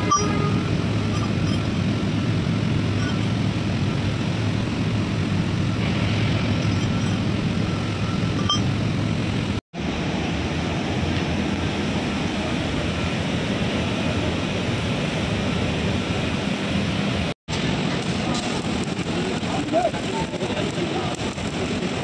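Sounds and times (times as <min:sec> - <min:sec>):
low rumbling background noise: 0:00.0 - 0:22.0
hiss: 0:17.6 - 0:22.0.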